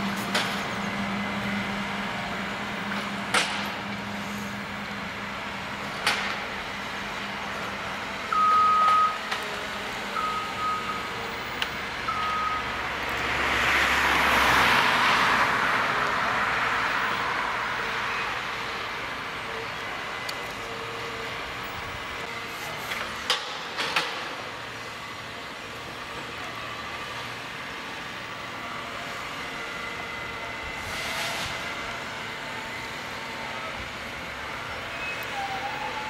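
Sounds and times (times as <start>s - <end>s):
short warning beeps: 8.3s - 9.2s, 10.2s - 11.1s, 12.1s - 12.7s.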